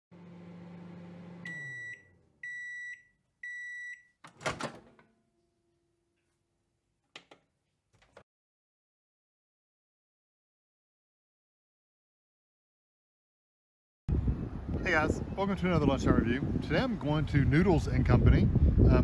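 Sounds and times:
microwave oven humming: 0.1s - 5.8s
high microwave beeps: 1.4s - 4.2s
microwave door clunk: 4.3s - 5.1s.

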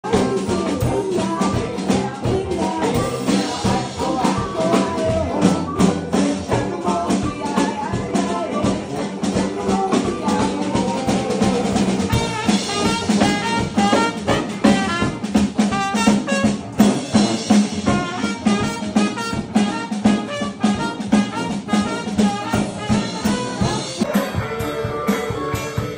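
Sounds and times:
drum kit beat: 0.0s - 25.9s
party band playing live: 0.0s - 25.9s
tuba bass line: 0.0s - 25.9s.

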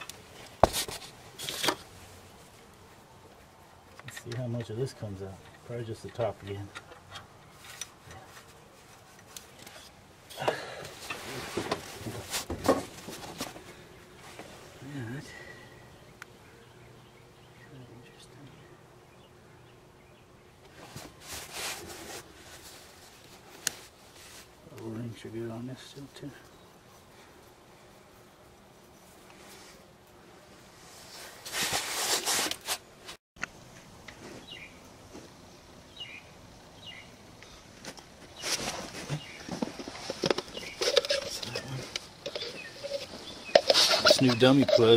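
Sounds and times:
hands rustling in engine bay: 0.0s - 2.8s, 20.6s - 24.6s, 37.4s - 44.9s
handling noise rustling and rubbing: 0.0s - 10.1s, 10.9s - 15.2s, 20.6s - 27.4s, 30.6s - 35.5s, 37.7s - 44.9s.

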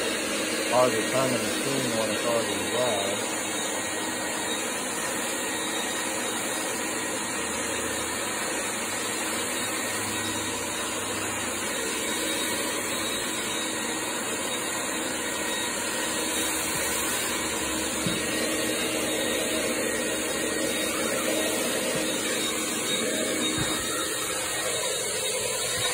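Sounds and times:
shop vacuum running: 0.0s - 25.9s.

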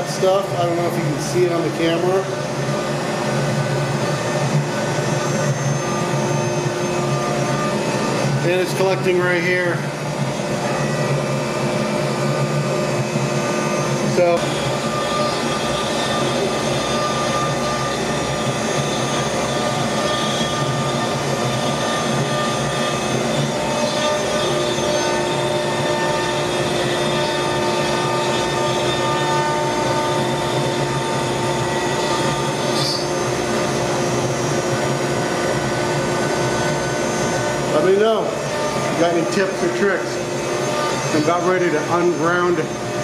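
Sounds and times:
dust collector air rush: 0.0s - 43.0s
low machine tone: 0.0s - 43.0s
steady whining tones: 0.0s - 43.0s.

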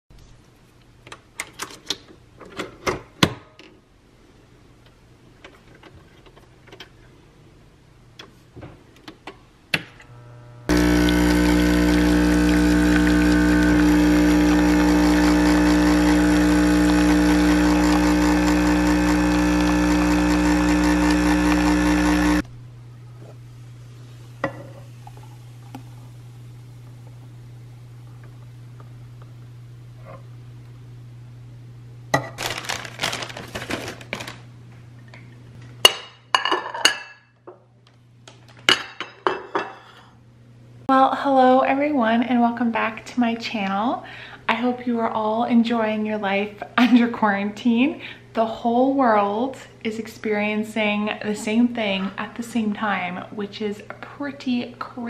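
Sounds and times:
coffee machine pump buzzing: 10.0s - 22.5s
coffee pouring into mug: 10.7s - 22.4s.

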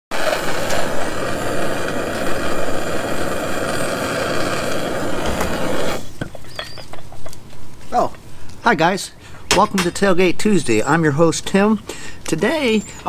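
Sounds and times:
gas torch roaring hiss: 0.1s - 6.3s.

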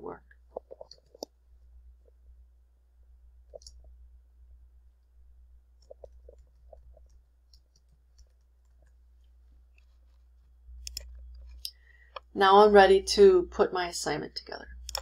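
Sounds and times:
keyboard keys clicking: 10.8s - 11.6s
mouse click: 10.8s - 12.3s.

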